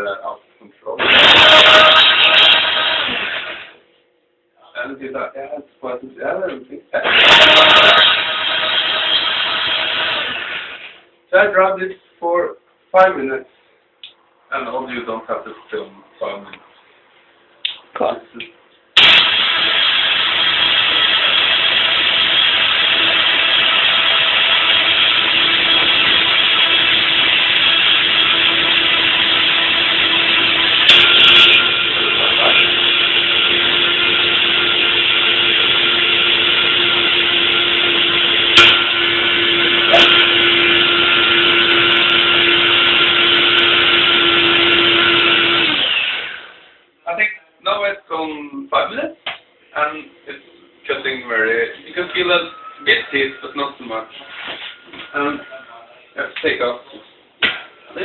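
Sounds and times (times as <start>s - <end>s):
blender whirring: 1.0s - 3.8s, 7.0s - 11.0s, 19.0s - 46.7s.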